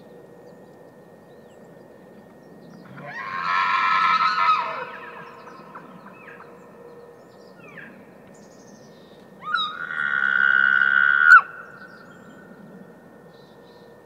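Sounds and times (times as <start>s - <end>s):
elk bugling: 2.8s - 6.6s, 9.4s - 12.1s.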